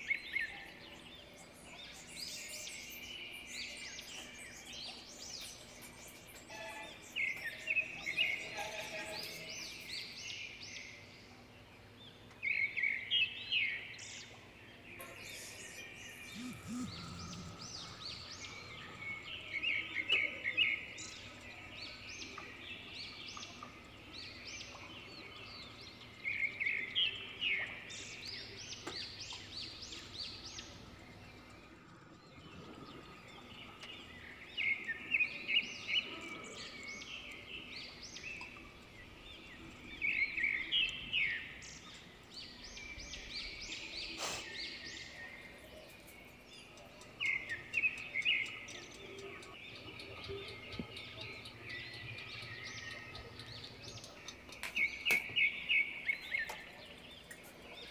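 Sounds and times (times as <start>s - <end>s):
birds chirping: 0.0s - 57.9s
faint hum: 15.3s - 21.7s.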